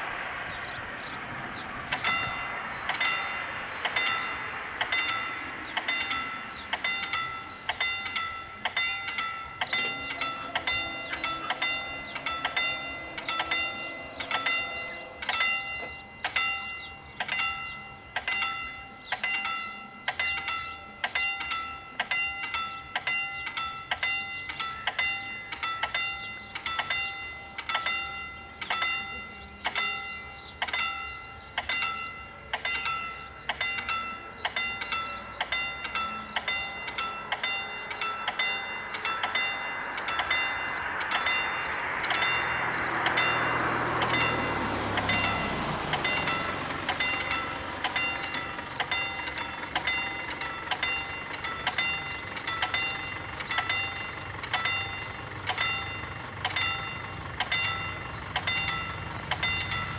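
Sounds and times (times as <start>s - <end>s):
level crossing warning bells: 0.0s - 59.9s.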